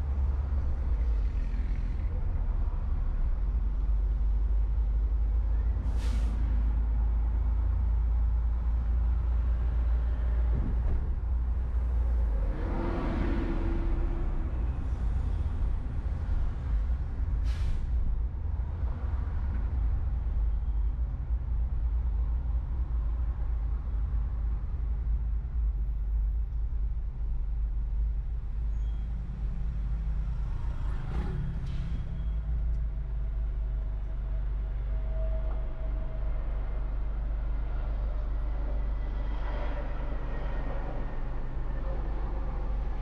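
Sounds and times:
passing vehicle: 0:00.0 - 0:26.0, 0:28.0 - 0:43.0
car driving in traffic: 0:00.0 - 0:43.0.

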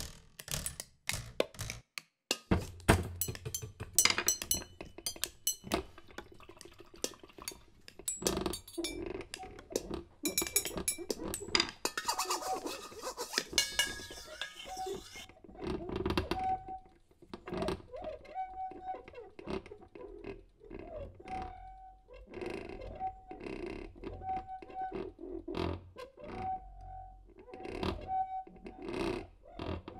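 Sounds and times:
clinks and knocks on household objects: 0:00.6 - 0:06.4, 0:07.0 - 0:09.1, 0:09.7 - 0:12.7, 0:13.4 - 0:15.2.

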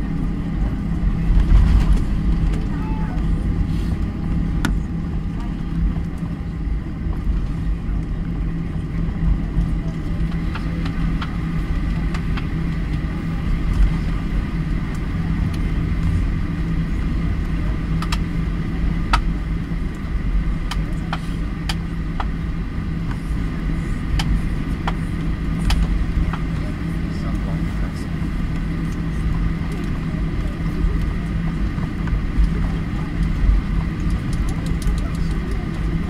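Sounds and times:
airliner cabin engine rumble: 0:00.0 - 0:36.0
light clicks and rattles: 0:32.4 - 0:35.9.

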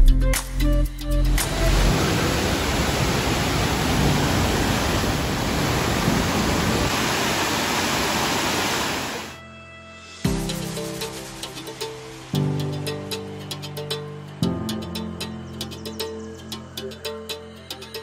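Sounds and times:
waterfall rushing: 0:01.3 - 0:09.4.

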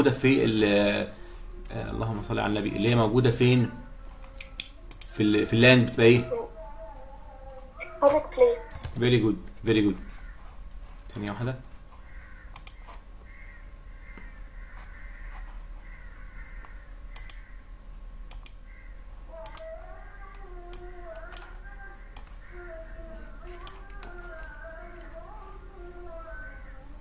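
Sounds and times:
computer mouse clicks: 0:04.2 - 0:05.2, 0:12.5 - 0:13.0, 0:16.6 - 0:17.5, 0:18.3 - 0:18.6, 0:19.4 - 0:19.7, 0:20.7 - 0:22.5, 0:23.4 - 0:25.1.

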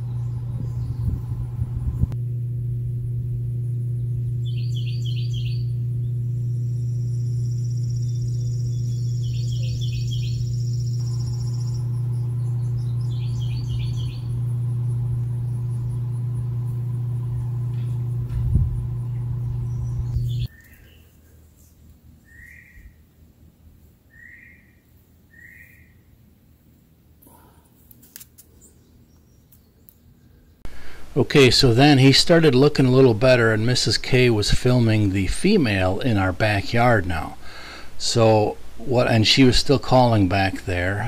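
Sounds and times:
birds chirping: 0:00.0 - 0:02.2, 0:03.8 - 0:23.0, 0:28.6 - 0:41.0
electrical transformer humming: 0:00.0 - 0:20.8, 0:30.6 - 0:41.0.

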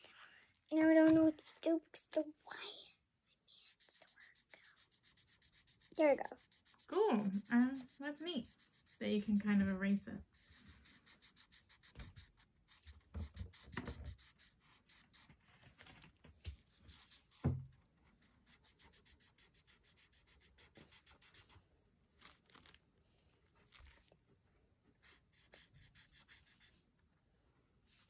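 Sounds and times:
marker scratching on board: 0:03.6 - 0:15.4, 0:16.6 - 0:21.6, 0:25.0 - 0:26.8
thump: 0:17.4 - 0:17.7.

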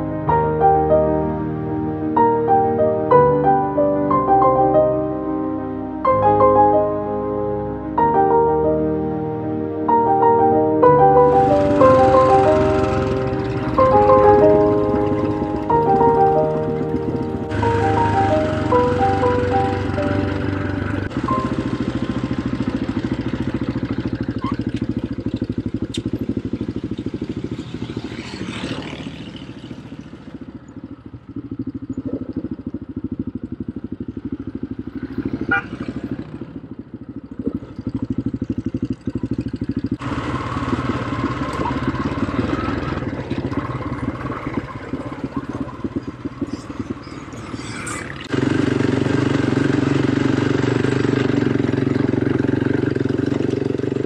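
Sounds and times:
quad bike engine revving: 0:10.9 - 0:54.0.

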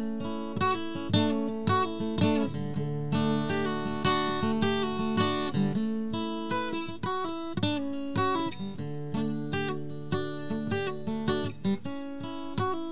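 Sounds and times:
acoustic guitar strumming: 0:00.0 - 0:12.9.

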